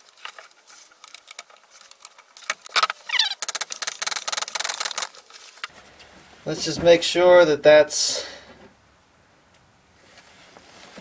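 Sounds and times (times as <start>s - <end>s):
short falling squeak: 2.8s - 3.5s.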